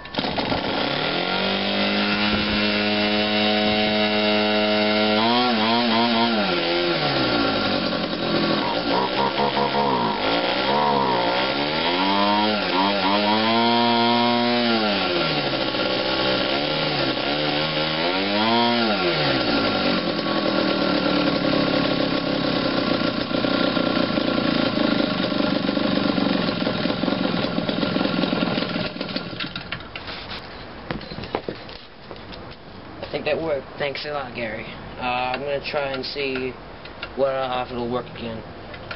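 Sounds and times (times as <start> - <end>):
model aircraft engine revving: 0.2 - 29.6.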